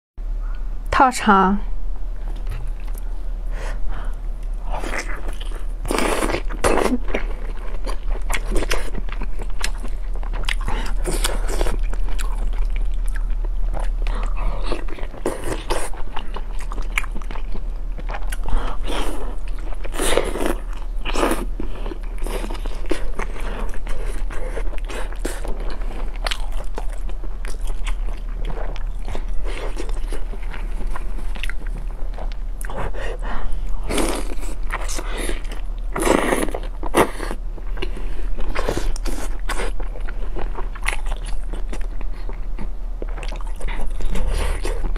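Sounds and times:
steady low hum: 0:00.2 - 0:44.9
person biting and chewing: 0:04.6 - 0:32.8.

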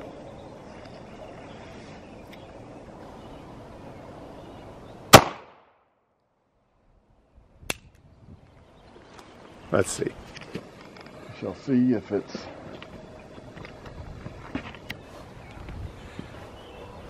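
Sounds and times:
background noise: 0:00.0 - 0:17.0
pistol shot: 0:05.1 - 0:05.8.

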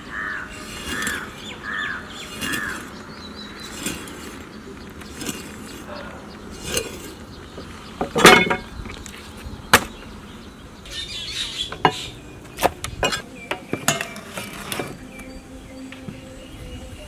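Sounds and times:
cooking utensils clinking: 0:08.0 - 0:08.8, 0:11.7 - 0:15.1.

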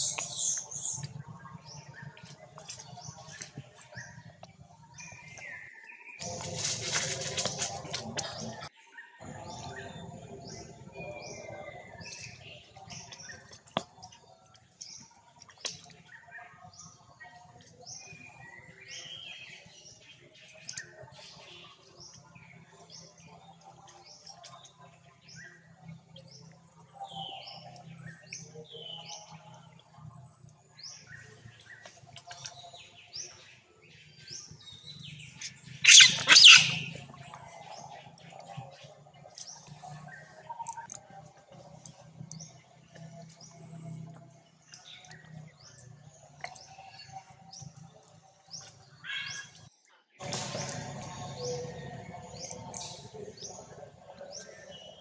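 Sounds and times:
birds chirping: 0:00.0 - 0:55.0
monkeys shrieking: 0:35.8 - 0:37.0.

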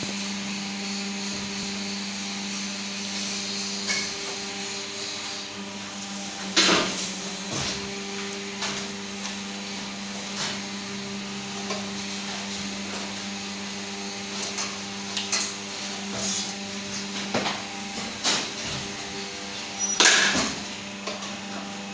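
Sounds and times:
press machines electric hum: 0:00.0 - 0:21.9.

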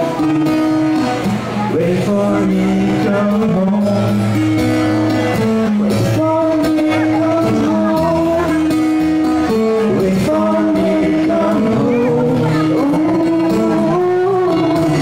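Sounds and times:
acoustic guitar: 0:00.0 - 0:15.0
man singing: 0:01.6 - 0:15.0
woman singing: 0:10.3 - 0:15.0.

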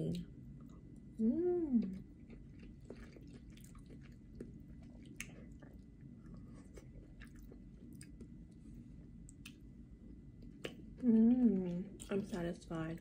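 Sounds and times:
chewing soft pasta: 0:00.0 - 0:12.7
low room hum: 0:00.0 - 0:13.0.

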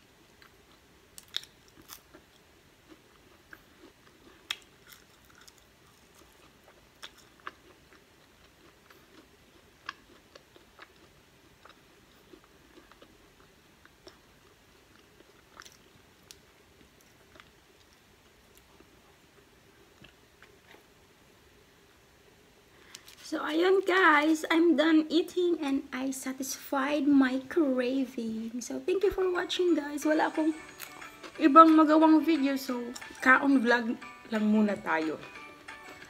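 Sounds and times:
faint steady hum: 0:00.0 - 0:36.0
chewing french fry: 0:00.3 - 0:21.0, 0:30.5 - 0:31.4.

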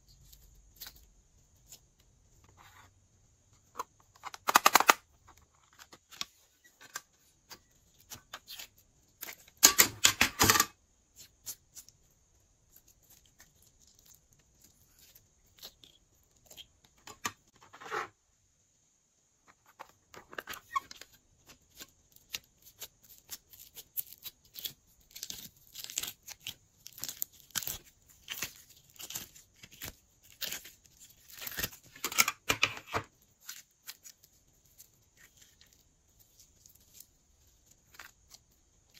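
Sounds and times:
slime squishing and crackling: 0:20.6 - 0:32.1.

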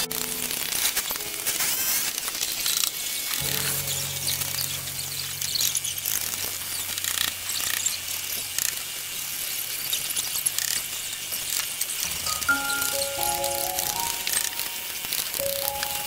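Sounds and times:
music: 0:00.0 - 0:07.8, 0:12.1 - 0:16.0
steady hiss: 0:00.0 - 0:16.0.

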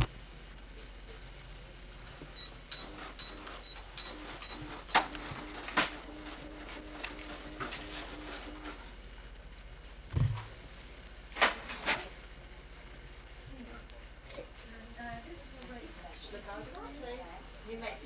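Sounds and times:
pulsing printer buzz: 0:02.3 - 0:09.0
cash register beeping: 0:02.4 - 0:08.9.

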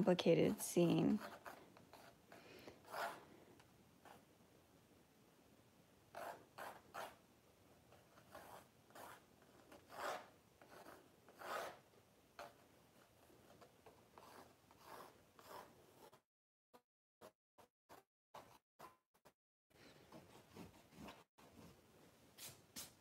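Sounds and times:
pencil sketching on canvas: 0:00.2 - 0:03.3, 0:06.1 - 0:07.2, 0:07.9 - 0:11.8, 0:12.4 - 0:16.2, 0:20.1 - 0:21.7.

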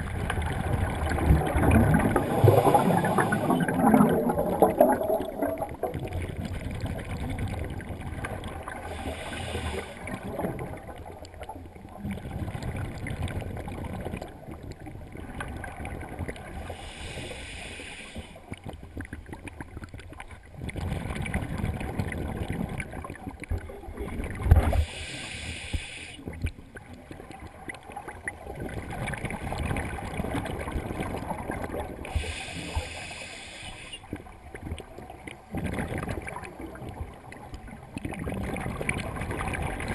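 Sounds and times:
exhaled air bubbling: 0:00.0 - 0:39.9
hissing regulator inhalation: 0:08.9 - 0:10.0, 0:16.8 - 0:18.4, 0:24.8 - 0:26.2, 0:32.1 - 0:34.1.

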